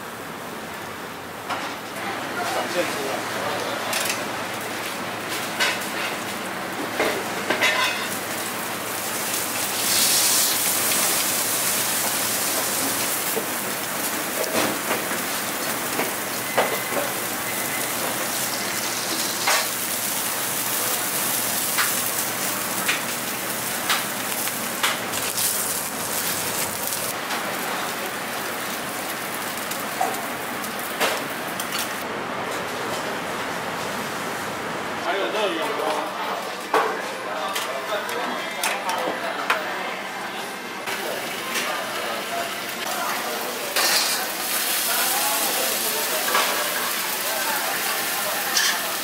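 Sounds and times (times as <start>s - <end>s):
seafood sizzling on a griddle: 2.4s - 32.0s, 40.9s - 49.0s.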